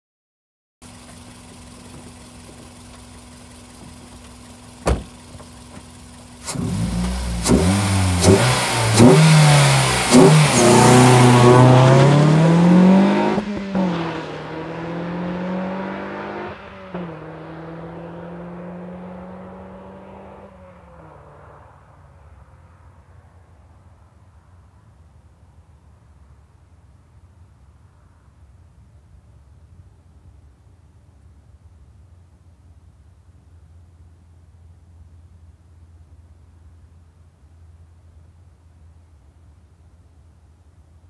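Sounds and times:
car engine revving and accelerating: 6.4s - 22.0s.

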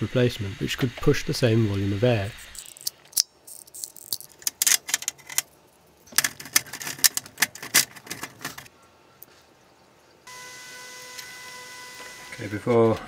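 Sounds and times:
metal tools clicking and rattling: 2.6s - 8.7s.

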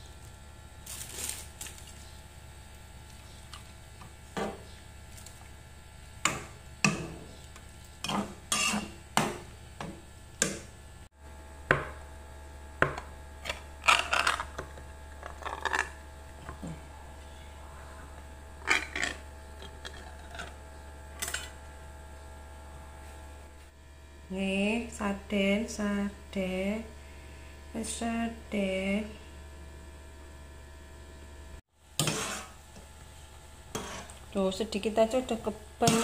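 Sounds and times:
steady low hum: 0.0s - 36.0s
utensil scraping against pan: 8.0s - 9.0s, 32.0s - 32.6s, 33.7s - 34.2s.

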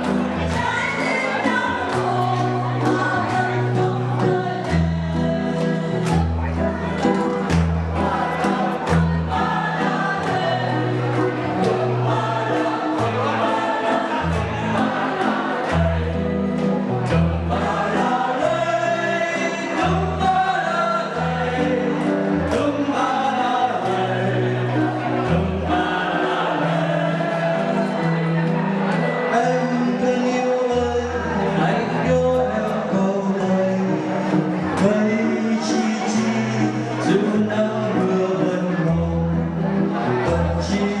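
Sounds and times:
choir singing a hymn: 0.0s - 28.7s
instrumental accompaniment: 0.0s - 41.0s.

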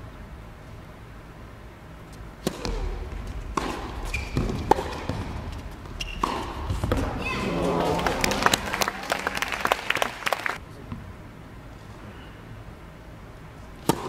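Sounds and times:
shoes squeaking on court: 2.1s - 7.9s
racket hitting tennis ball: 2.1s - 8.6s, 13.8s - 14.0s.

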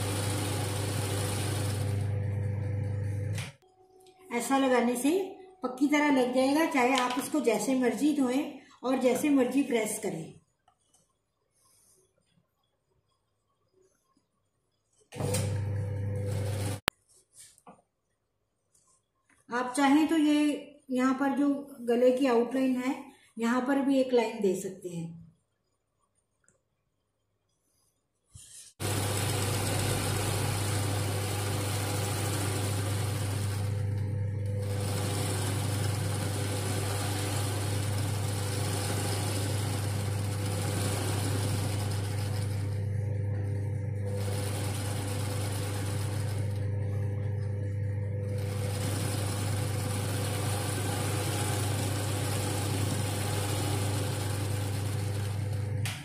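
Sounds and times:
sewing machine running: 0.0s - 3.5s, 15.2s - 16.8s, 28.8s - 55.9s.

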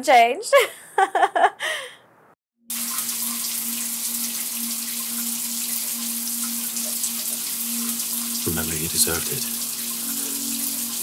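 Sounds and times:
shower water spraying: 2.7s - 11.0s.

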